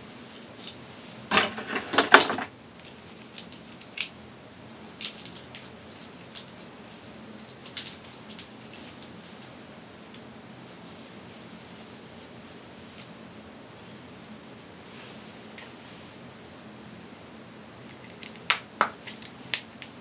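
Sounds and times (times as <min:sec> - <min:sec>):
comb rustling and clicking in hair: 0:00.3 - 0:04.2, 0:05.0 - 0:06.7, 0:07.4 - 0:10.3.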